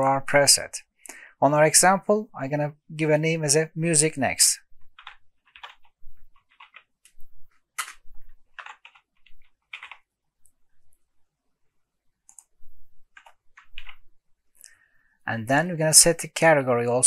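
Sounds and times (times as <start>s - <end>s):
typing on computer keyboard: 4.9s - 7.2s, 7.8s - 10.1s, 13.1s - 14.0s.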